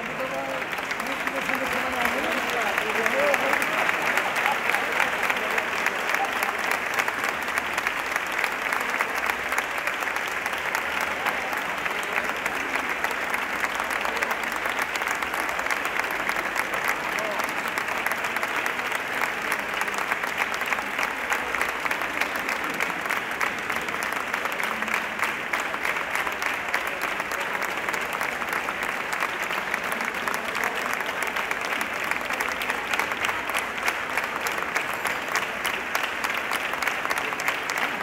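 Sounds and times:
audience applauding: 0.0 - 38.0.

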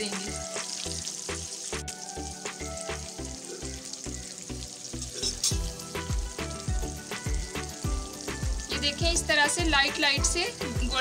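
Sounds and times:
background music with beat: 0.0 - 3.6, 5.1 - 11.0
chicken deep-frying in oil: 0.0 - 11.0.

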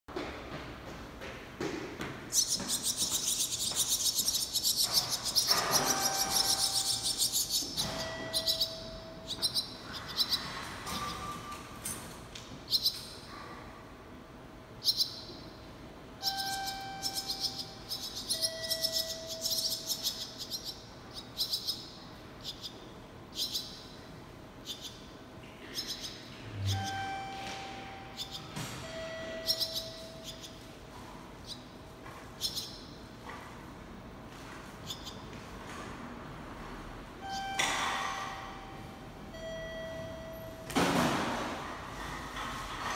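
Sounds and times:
swallow nestlings chirping: 2.3 - 10.5, 16.2 - 23.8, 29.3 - 30.5.

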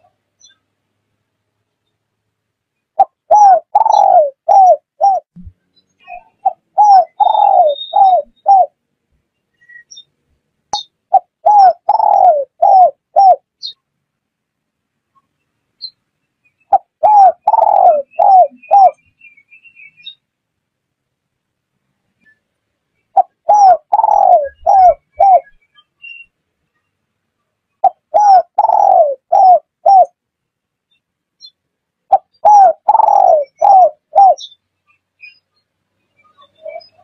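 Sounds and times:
small birds chirping: 0.0 - 0.8, 2.7 - 13.9, 15.1 - 20.3, 22.1 - 30.2, 30.8 - 37.0
dove cooing: 3.0 - 5.3, 6.3 - 8.8, 11.1 - 13.5, 16.7 - 19.0, 23.1 - 25.6, 27.8 - 30.2, 32.1 - 34.5.

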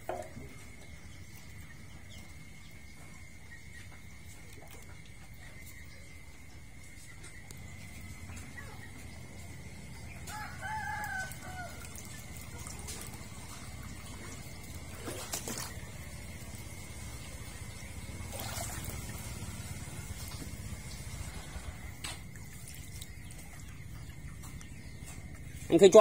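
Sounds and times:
rooster crowing: 9.9 - 12.6.

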